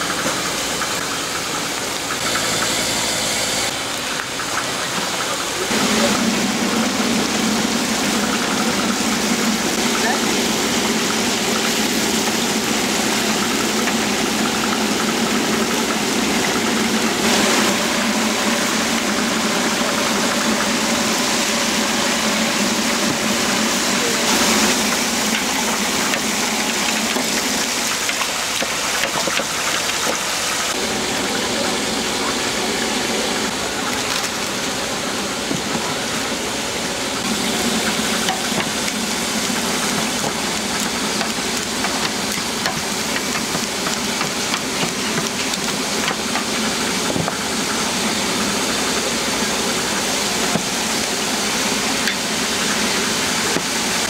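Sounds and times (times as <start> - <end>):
mechanical hum: 0.0 - 54.0.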